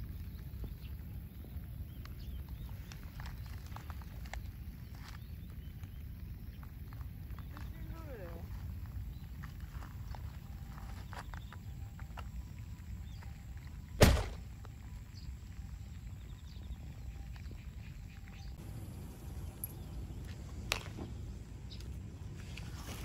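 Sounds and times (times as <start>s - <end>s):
wind rumble on microphone: 0.0s - 11.6s
loud thump: 14.0s - 14.4s.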